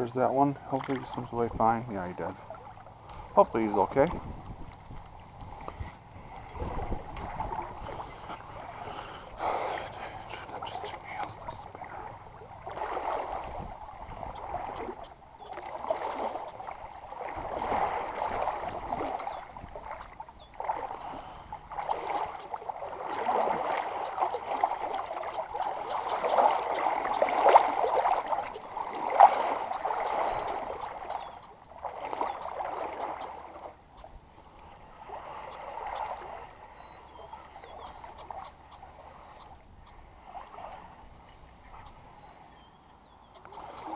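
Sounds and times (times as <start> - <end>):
paddle strokes through water: 0.0 - 43.9.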